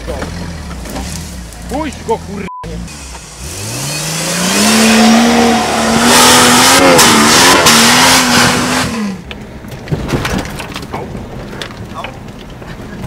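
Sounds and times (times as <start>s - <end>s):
engine at high revs: 0.0s - 9.2s.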